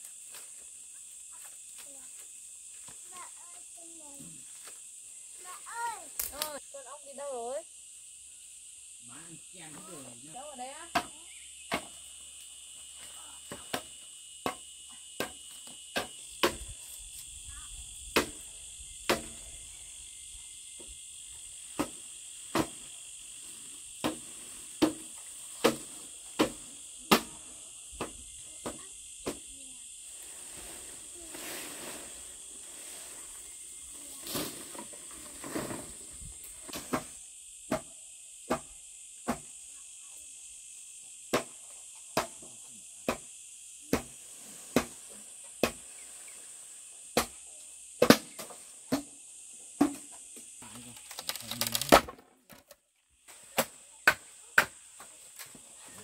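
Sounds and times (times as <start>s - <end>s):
insects chirring: 0.0s - 56.0s
sharp chopping knocks: 19.1s - 19.4s.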